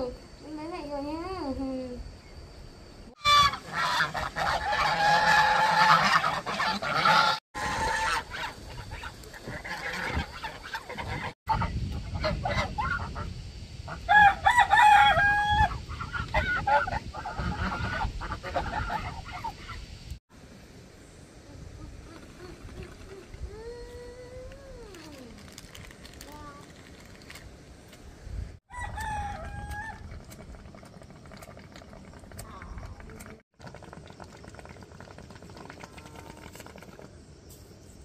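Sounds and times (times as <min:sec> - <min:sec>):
geese honking: 0:03.2 - 0:13.3.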